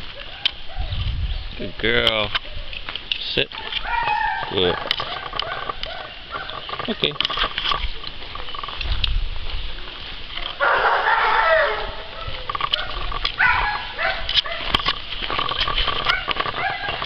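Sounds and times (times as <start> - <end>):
animal calls: 3.5 - 7.2, 10.6 - 17.0.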